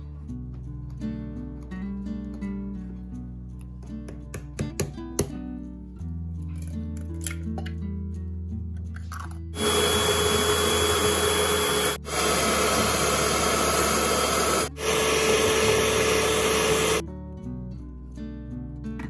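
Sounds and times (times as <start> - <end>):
electric hand mixer running: 9.6 - 17.0.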